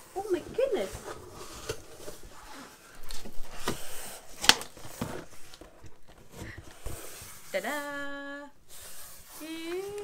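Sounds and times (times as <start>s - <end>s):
box packaging rustling: 0.0s - 8.0s.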